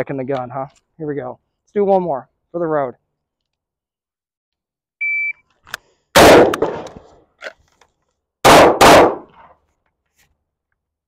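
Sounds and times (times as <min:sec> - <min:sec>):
gunshots: 0:06.2 - 0:07.1, 0:08.4 - 0:09.4.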